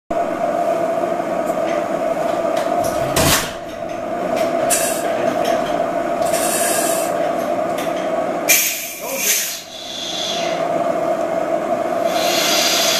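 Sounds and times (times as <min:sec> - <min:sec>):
gas whistling hiss: 0:06.3 - 0:07.2, 0:08.5 - 0:10.6, 0:12.0 - 0:12.9.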